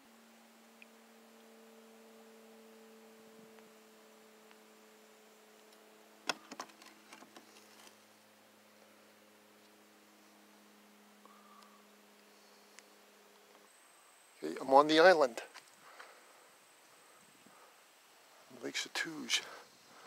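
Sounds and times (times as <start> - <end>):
faint steady hum: 0.0 - 20.0
clicks and knocks in a kayak: 6.3 - 7.9.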